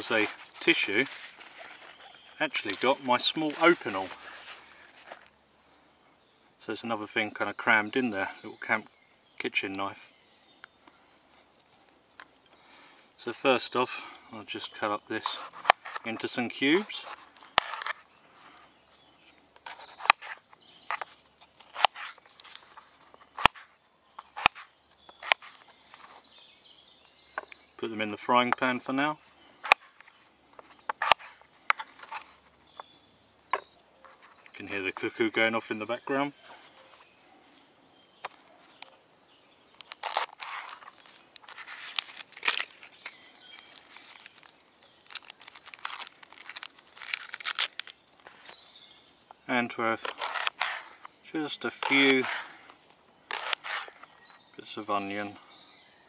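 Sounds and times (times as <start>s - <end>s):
soft scraping: 0.0s - 5.3s
onion skin crackling and tearing: 39.7s - 48.6s, 50.0s - 50.8s, 51.7s - 52.5s, 53.3s - 54.0s.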